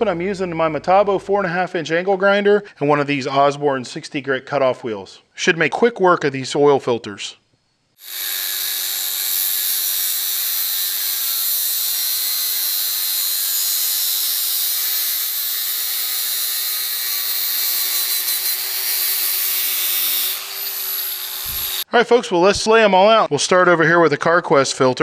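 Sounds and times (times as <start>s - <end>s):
angle grinder cutting steel: 8.0s - 21.9s.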